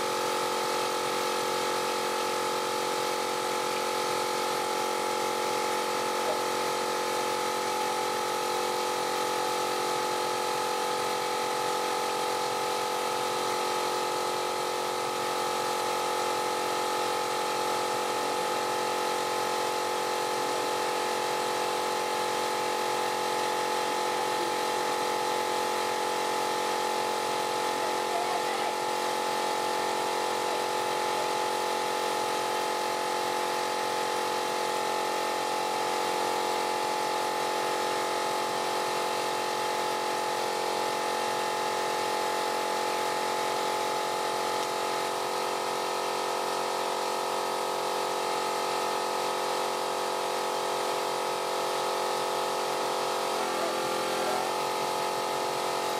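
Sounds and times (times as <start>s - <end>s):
wood lathe motor humming: 51.7s - 55.9s.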